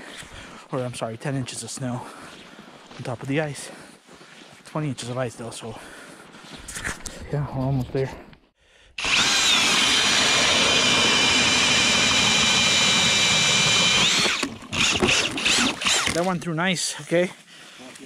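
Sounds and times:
drill motor whine: 9.0 - 16.2
ice auger grinding: 9.0 - 16.4.

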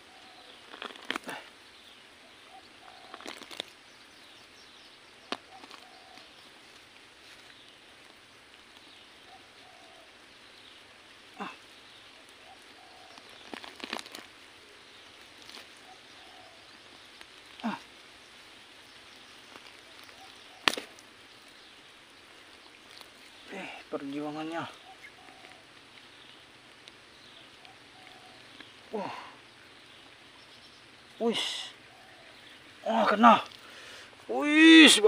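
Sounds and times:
faint chirps: 0.0 - 35.0
hands digging in soil: 12.6 - 16.2, 19.2 - 21.6.

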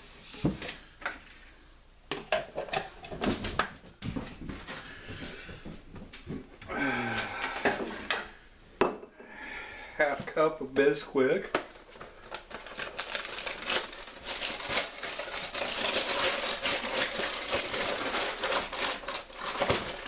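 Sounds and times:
rustling: 11.6 - 20.0.

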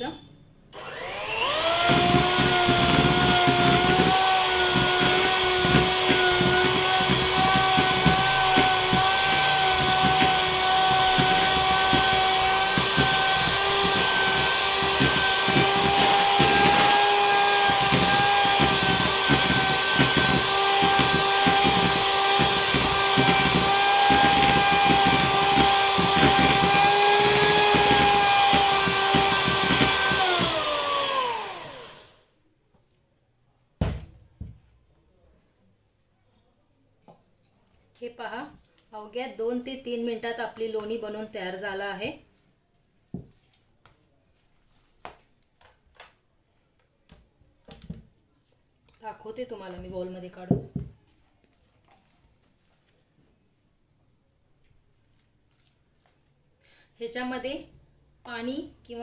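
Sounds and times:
electric hand mixer running: 0.7 - 32.2.

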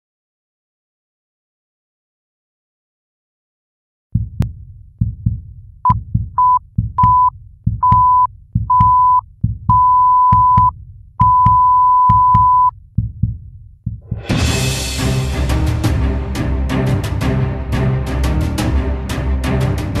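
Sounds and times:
heartbeat-like low thumps: 4.1 - 15.2
high electronic beep: 6.4 - 12.7.

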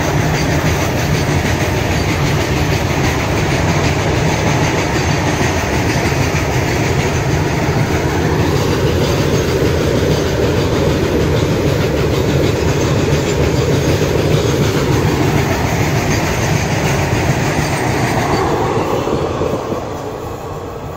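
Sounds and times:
freight train wheels rumbling: 0.0 - 20.9.

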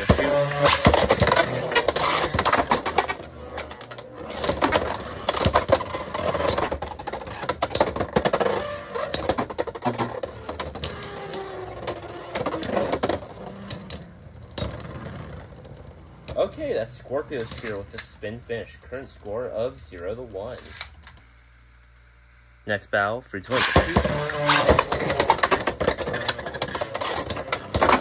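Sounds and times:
spinning whir: 0.0 - 16.1.

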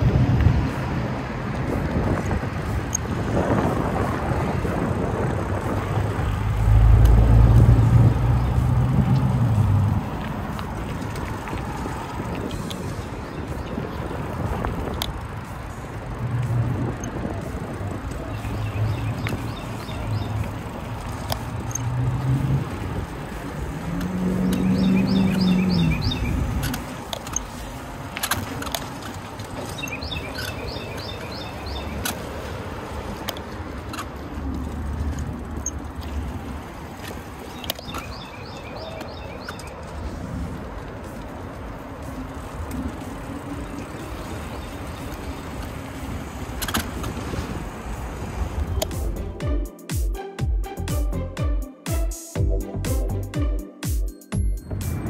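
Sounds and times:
wind on microphone: 0.0 - 20.9, 42.2 - 49.2
bicycle tyre rumble: 0.0 - 49.4
bird chirping: 18.2 - 20.5, 24.2 - 26.8, 29.6 - 32.1, 37.5 - 39.8
sharp clicks: 48.7 - 49.1.

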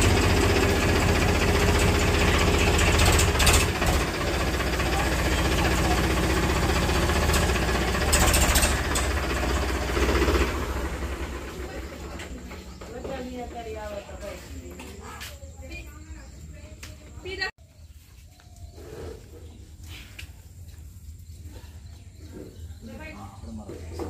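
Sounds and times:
engine idling: 0.0 - 13.8.

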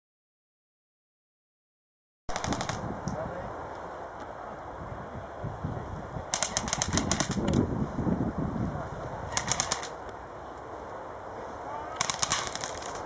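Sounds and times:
airsoft rifle bursts: 2.3 - 2.9, 6.3 - 7.6, 9.3 - 10.0, 11.9 - 13.0.

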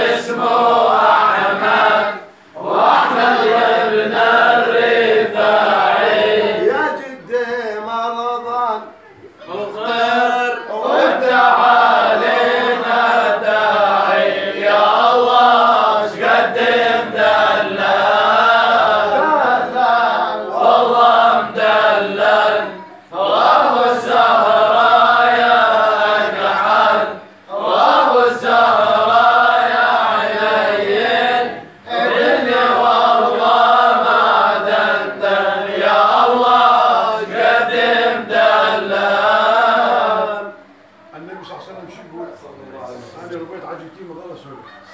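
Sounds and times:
man singing unaccompanied: 5.2 - 14.0.

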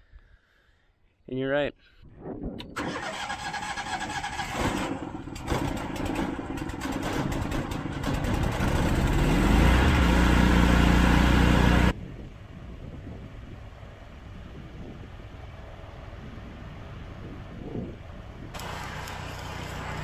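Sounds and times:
electric starter cranking engine: 2.7 - 11.9, 18.6 - 20.0
generator engine running: 2.8 - 11.9, 18.6 - 20.0.

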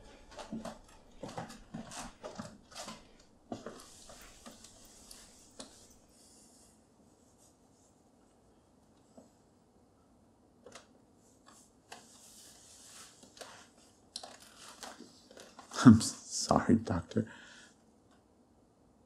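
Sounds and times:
soft rustling: 0.0 - 8.4, 11.2 - 15.9
faint hiss: 3.6 - 9.6.

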